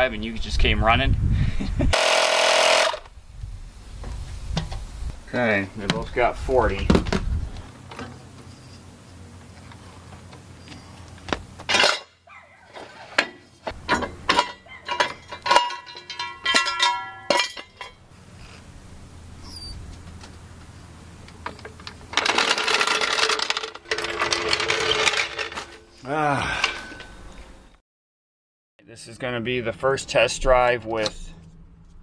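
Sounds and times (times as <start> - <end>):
metal clanks and knocks: 11.6 - 18.0
rough metal scraping: 11.6 - 18.1, 21.7 - 27.6.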